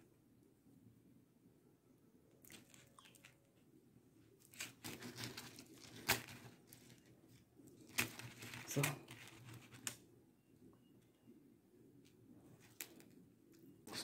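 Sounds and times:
beads clicking and rustling: 4.4s - 10.0s
faint scratching: 4.4s - 10.0s.

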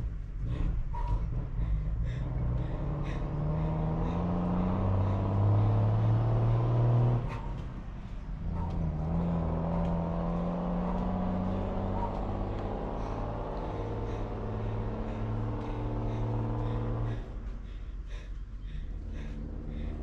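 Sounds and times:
vehicle engine accelerating: 0.0s - 20.0s.

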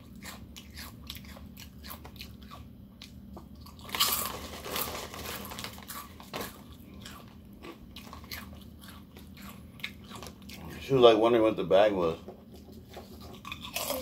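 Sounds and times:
chewing crunchy chips: 0.0s - 11.1s, 13.1s - 14.0s
chip bag rustling: 3.8s - 7.4s.

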